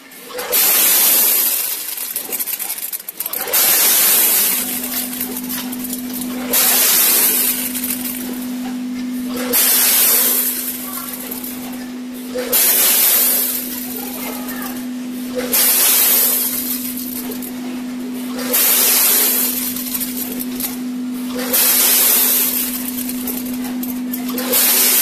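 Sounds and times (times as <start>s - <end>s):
steady machine hum: 0.0s - 25.0s
kernels pouring down chute: 0.5s - 8.3s, 9.5s - 11.4s, 12.5s - 14.3s, 15.5s - 17.4s, 18.5s - 20.5s, 21.5s - 23.6s, 24.4s - 25.0s.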